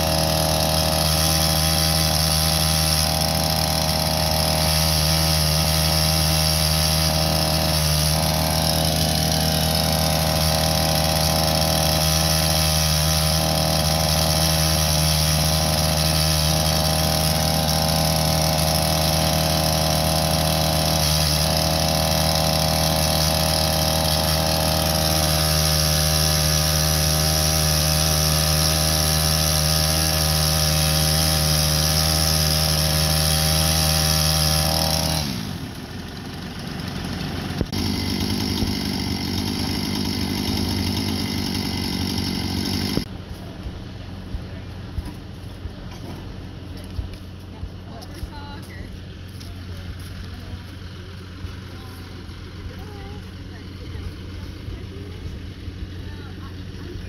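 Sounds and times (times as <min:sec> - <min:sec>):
tractor engine running: 0:00.0 - 0:57.0.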